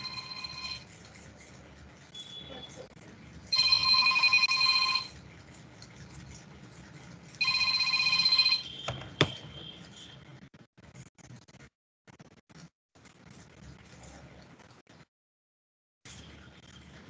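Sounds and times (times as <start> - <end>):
electronic phone ringing: 0.0 - 0.9, 3.6 - 5.2, 7.4 - 9.6.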